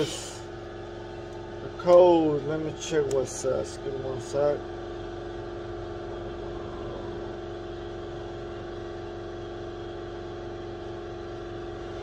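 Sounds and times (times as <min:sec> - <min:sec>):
steady mechanical hum: 0:00.0 - 0:12.0
low rumble: 0:05.9 - 0:08.7.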